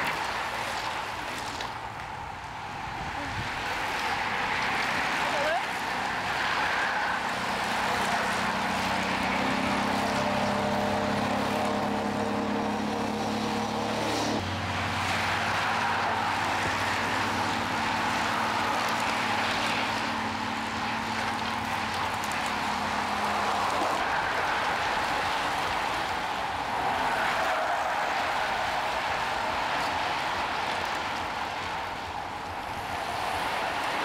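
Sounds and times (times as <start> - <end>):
low engine hum: 0.0 - 34.0
quad bike engine passing by: 7.5 - 25.5
bicycle tyres hissing on road: 14.1 - 34.0.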